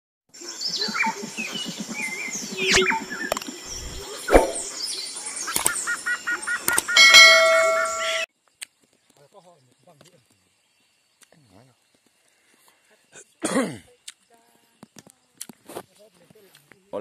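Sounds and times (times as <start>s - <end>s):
jungle bird calls: 0.4s - 8.3s
sharp click: 2.7s - 4.7s, 5.5s - 5.8s, 6.7s - 6.9s
ringing bell chime: 7.0s - 8.3s.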